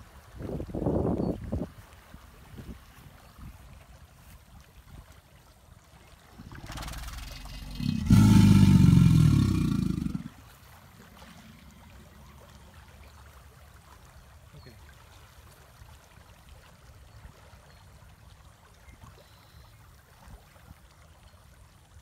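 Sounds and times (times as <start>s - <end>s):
alligator bellowing: 6.4s - 10.4s.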